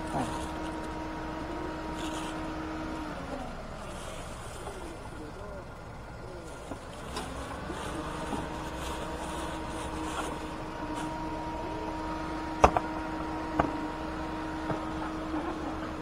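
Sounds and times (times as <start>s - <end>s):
steady mechanical hum: 0.0s - 16.0s
hands rustling in cooler box: 6.4s - 11.2s.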